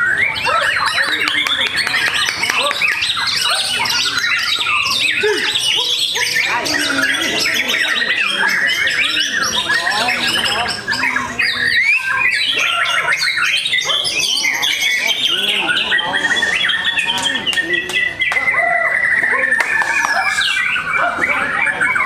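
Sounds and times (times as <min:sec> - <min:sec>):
other birds singing: 0:00.0 - 0:22.0.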